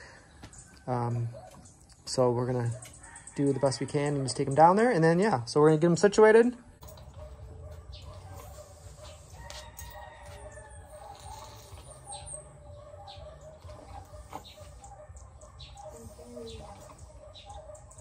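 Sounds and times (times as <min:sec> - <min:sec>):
birds calling: 0:06.7 - 0:18.0.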